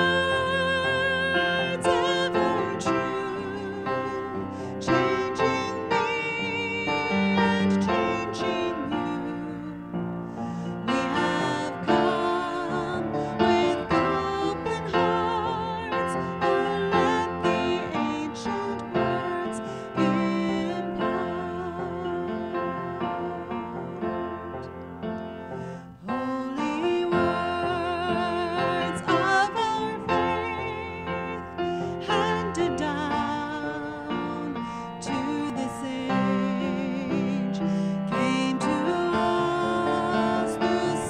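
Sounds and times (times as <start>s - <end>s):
person singing with vibrato: 0.0s - 24.8s, 25.4s - 41.0s
piano accompaniment: 0.0s - 41.0s.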